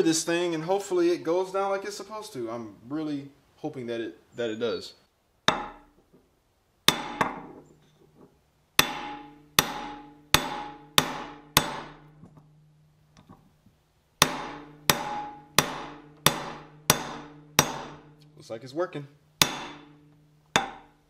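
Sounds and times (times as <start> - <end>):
hammer striking metal tube: 5.5 - 5.9, 6.9 - 7.6, 8.8 - 12.4, 14.2 - 18.2, 19.4 - 21.0.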